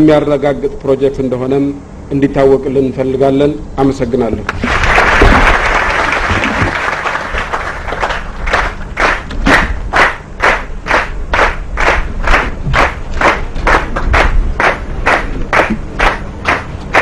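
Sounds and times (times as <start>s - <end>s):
audience clapping: 4.5s - 17.0s.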